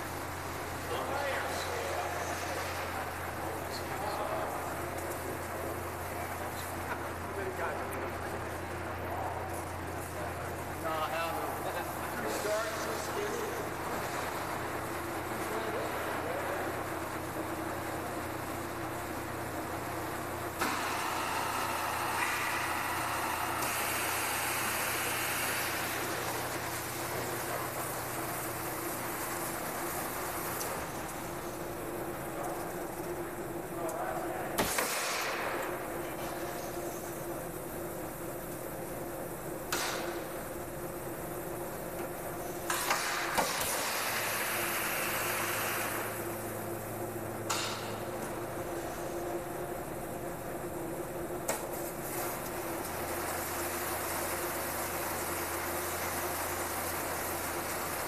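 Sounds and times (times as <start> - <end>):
continuous hiss: 0.0 - 58.0
machinery hum: 0.0 - 58.0
machine clunk: 47.5 - 48.0.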